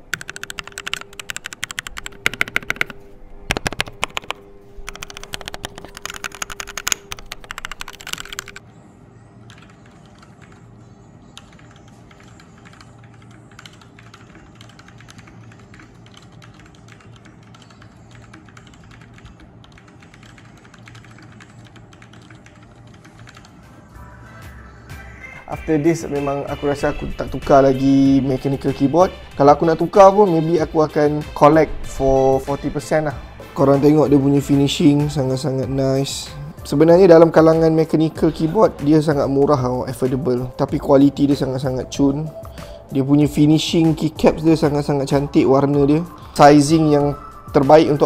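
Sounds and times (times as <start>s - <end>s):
mechanical keyboard typing: 0.0s - 8.6s, 9.5s - 10.6s, 11.4s - 23.6s.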